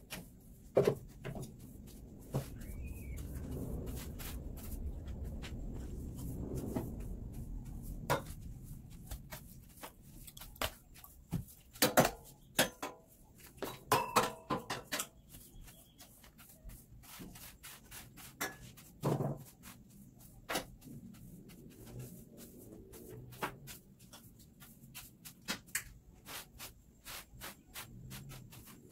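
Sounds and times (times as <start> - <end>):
wooden broom knocking and tapping: 0.0 - 19.8, 20.4 - 22.1.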